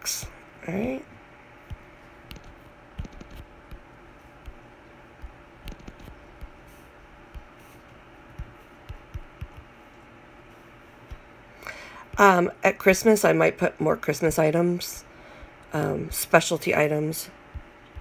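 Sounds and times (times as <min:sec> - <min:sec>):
finger tapping touchscreen: 0:01.7 - 0:04.6, 0:05.2 - 0:06.6, 0:07.3 - 0:09.7.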